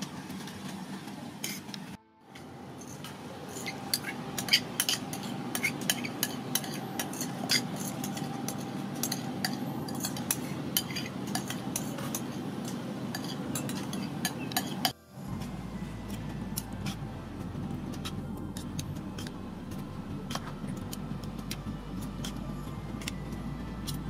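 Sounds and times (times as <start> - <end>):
cutlery clinking on metal tray: 2.9 - 14.9
steady low hiss: 14.8 - 24.0.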